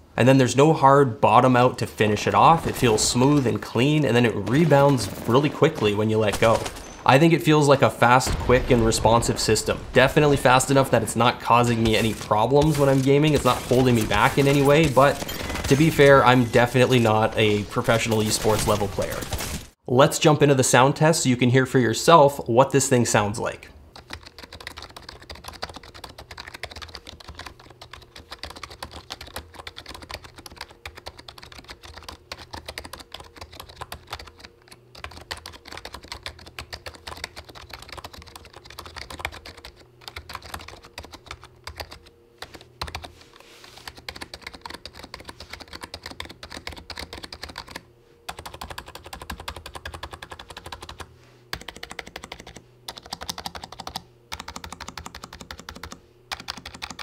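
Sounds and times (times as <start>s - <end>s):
soft keyboard typing: 23.9s - 57.0s.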